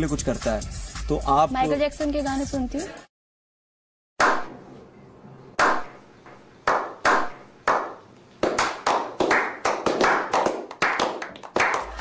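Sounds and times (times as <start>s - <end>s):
slow hand claps: 6.7s - 12.0s.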